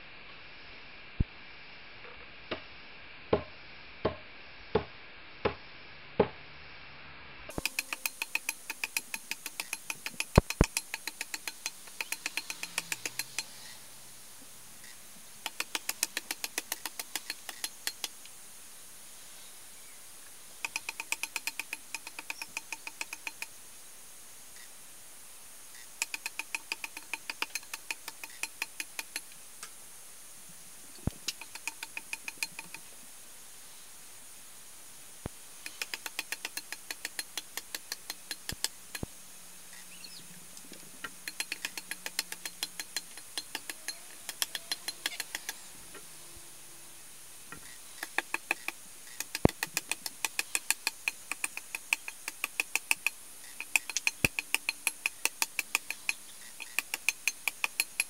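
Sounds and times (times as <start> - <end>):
hand tool striking wood: 3.3 - 4.2, 7.5 - 13.5, 41.0 - 45.6.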